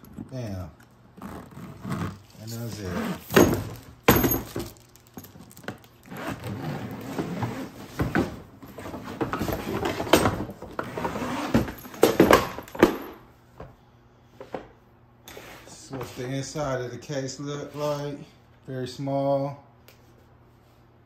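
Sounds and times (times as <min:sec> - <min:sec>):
suitcase zipper opening: 0:01.2 - 0:03.4, 0:06.0 - 0:07.9, 0:10.8 - 0:11.9.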